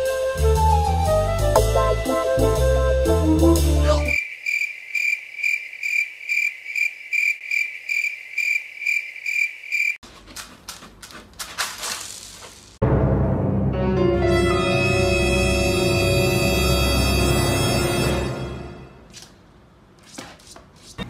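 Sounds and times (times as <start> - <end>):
cricket chirping: 4.1 - 10.0
cat scratching in litter: 10.0 - 12.8, 20.0 - 21.0.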